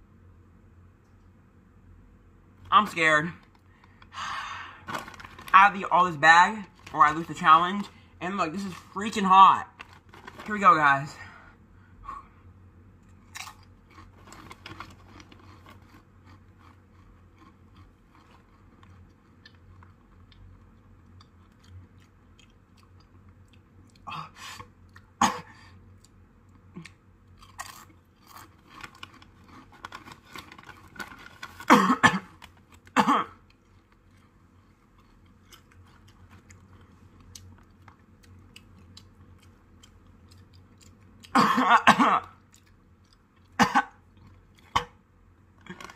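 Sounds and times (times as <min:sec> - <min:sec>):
person crunching chips: 0:02.8 - 0:11.2, 0:13.1 - 0:24.3, 0:26.0 - 0:41.4.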